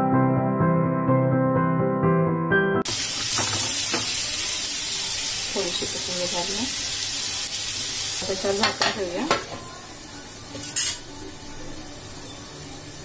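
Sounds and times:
food sizzling in a pan: 0:02.8 - 0:13.0.

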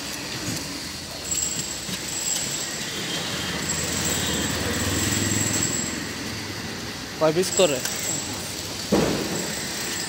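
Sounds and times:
passing vehicles rumbling: 0:02.6 - 0:10.0.

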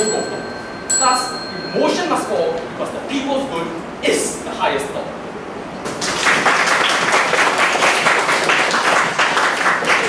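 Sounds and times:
audience applauding: 0:05.9 - 0:10.0.

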